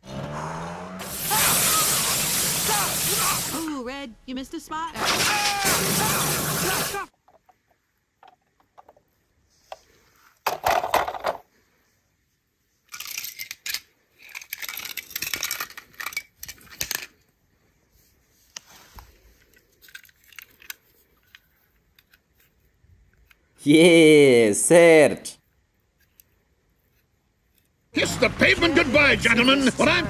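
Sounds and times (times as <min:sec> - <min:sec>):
hose spray: 0:01.0 - 0:03.7, 0:05.0 - 0:07.1
metal toy cars clattering: 0:05.0 - 0:06.1, 0:10.5 - 0:11.5, 0:12.9 - 0:17.3, 0:19.6 - 0:22.3.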